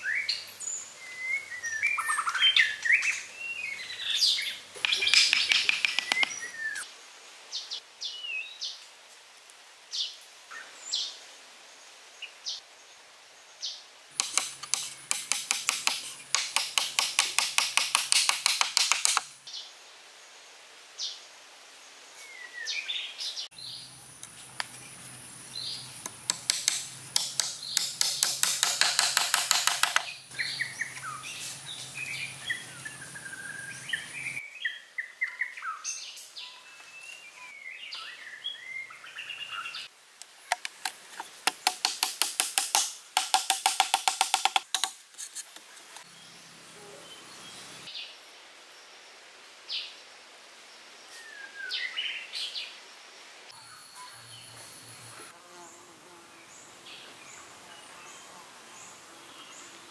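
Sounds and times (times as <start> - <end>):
birds chirping: 0.0 - 6.9, 22.3 - 41.4
wooden stick tapping wooden slats: 4.8 - 6.4, 14.2 - 19.3, 26.0 - 30.2, 40.5 - 45.0.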